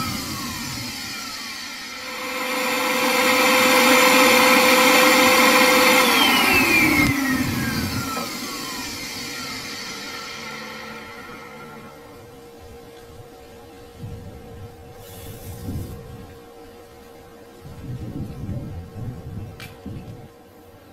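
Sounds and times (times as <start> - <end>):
electric suction motor whirring: 0.0 - 13.2.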